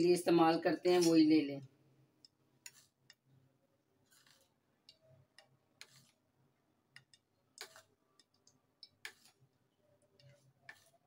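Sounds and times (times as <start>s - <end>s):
spoon scraping glass bowl: 2.6s - 3.2s, 4.0s - 6.2s, 7.0s - 11.0s.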